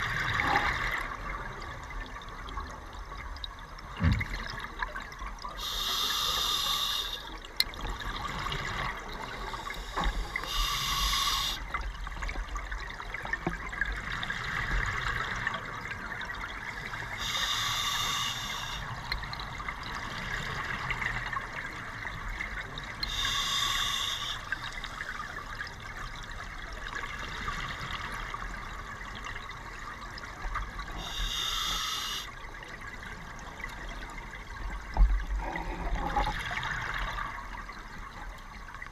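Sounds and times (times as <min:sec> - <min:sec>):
regulator inhale hiss: 0:05.6 - 0:07.3, 0:09.3 - 0:11.6, 0:17.0 - 0:19.0, 0:23.0 - 0:24.8, 0:30.9 - 0:32.3.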